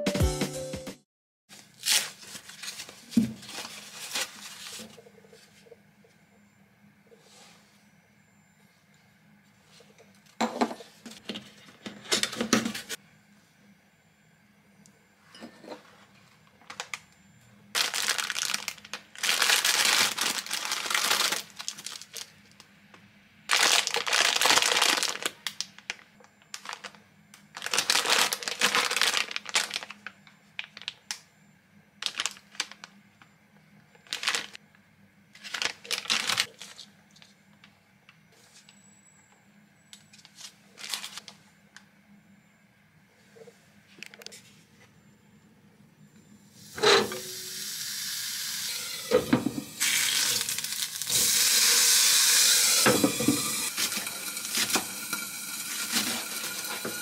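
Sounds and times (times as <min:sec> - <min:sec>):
plastic and foam packaging crinkling: 0:01.5 - 0:05.6, 0:16.6 - 0:17.0, 0:17.8 - 0:22.7, 0:23.5 - 0:31.2, 0:32.0 - 0:33.0, 0:33.9 - 0:34.6, 0:35.4 - 0:37.4, 0:40.1 - 0:41.4, 0:49.7 - 0:51.5, 0:52.8 - 0:57.0.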